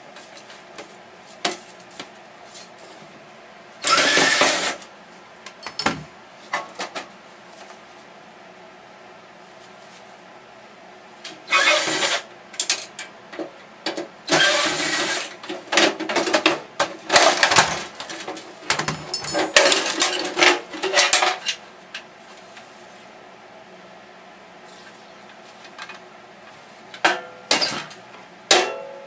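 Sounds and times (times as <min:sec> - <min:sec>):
noisy mechanical bursts: 0:03.8 - 0:04.9, 0:11.4 - 0:12.3, 0:14.2 - 0:15.4.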